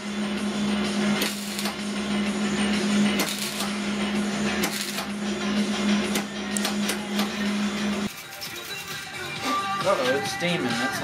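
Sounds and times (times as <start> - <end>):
arc welder crackling: 0.7 - 9.0.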